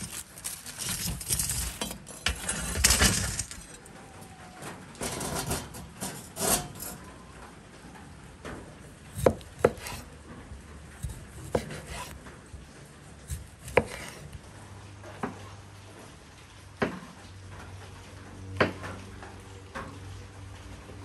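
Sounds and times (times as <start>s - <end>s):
knife scraping on board: 5.0s - 7.0s, 9.2s - 10.0s, 11.0s - 12.2s, 13.3s - 14.4s.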